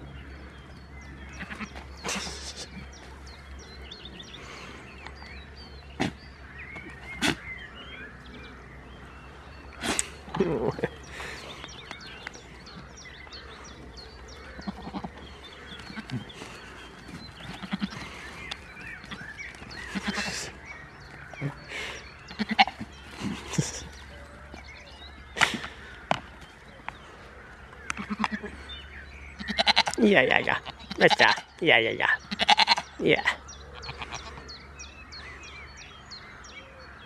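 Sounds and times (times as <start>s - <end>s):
goats bleating: 1.3s - 2.9s, 14.3s - 20.6s, 22.3s - 24.0s, 27.9s - 28.6s, 29.4s - 31.5s, 32.2s - 33.2s, 33.8s - 34.4s.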